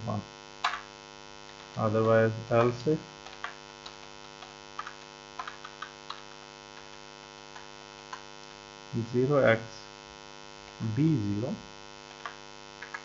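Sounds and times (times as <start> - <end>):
electrical mains hum: 0.0 - 13.0.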